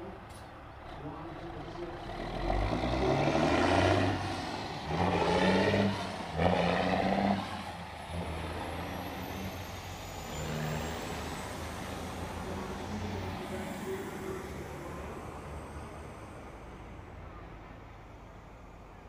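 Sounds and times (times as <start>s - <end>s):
diesel truck engine revving: 0.9s - 18.9s.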